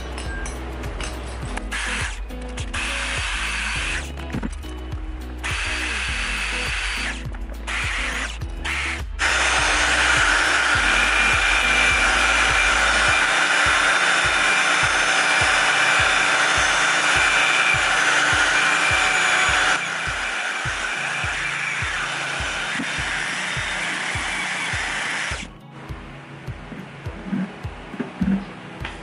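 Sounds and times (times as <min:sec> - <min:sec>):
drill with wire brush on metal: 0:01.4 - 0:04.2, 0:05.4 - 0:25.5.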